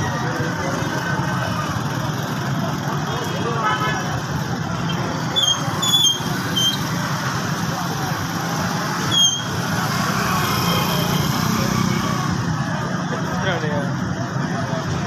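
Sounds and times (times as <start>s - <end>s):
vehicle engines rumbling: 0.0s - 15.0s
short high-pitched squeaks: 4.8s - 7.0s, 9.0s - 9.6s.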